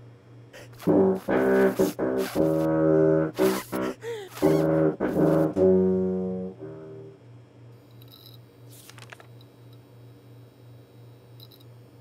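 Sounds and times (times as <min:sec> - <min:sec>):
tuba note: 0:00.6 - 0:07.2
low pulsing hum: 0:00.6 - 0:07.4
brief rustle: 0:08.7 - 0:09.4.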